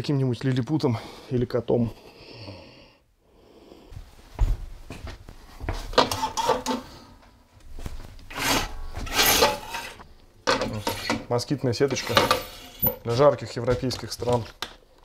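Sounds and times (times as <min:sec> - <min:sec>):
window screen sliding and rattling: 0:08.3 - 0:11.2.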